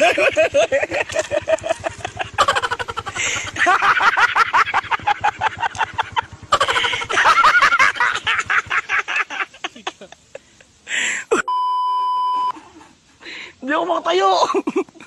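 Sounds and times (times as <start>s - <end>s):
man laughing hysterically: 0.0s - 11.5s, 14.4s - 15.0s.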